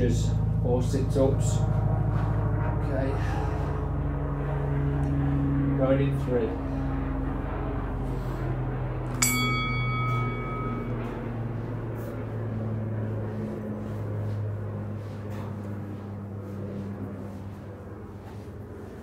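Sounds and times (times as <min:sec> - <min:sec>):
steady low hum: 0:00.0 - 0:19.0
metallic bell ding: 0:09.1 - 0:11.2.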